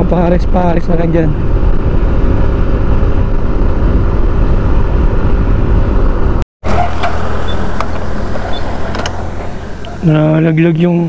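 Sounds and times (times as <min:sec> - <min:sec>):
wind rushing on microphone: 0:00.0 - 0:10.6
low hum: 0:01.3 - 0:11.0
scooter engine running: 0:06.6 - 0:10.5.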